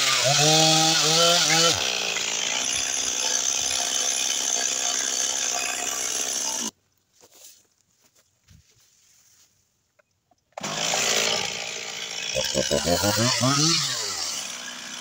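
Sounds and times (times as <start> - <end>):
chainsaw running: 0.0 - 6.7, 10.6 - 15.0
faint rustles: 7.1 - 9.8.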